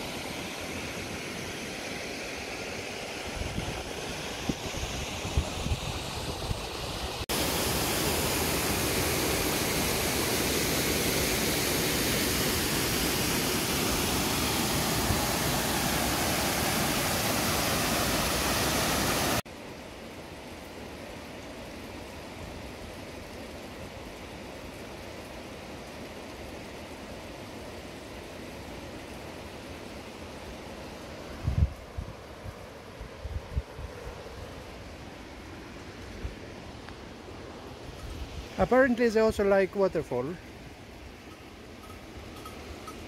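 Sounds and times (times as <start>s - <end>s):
quiet outdoor noise: 5.8s - 43.0s
river water rushing over rocks: 6.8s - 19.4s.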